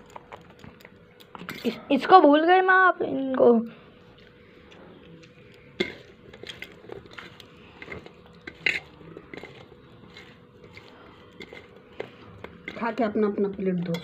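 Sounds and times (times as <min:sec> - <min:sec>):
taps and clinks on steel plate: 0:13.8 - 0:14.0.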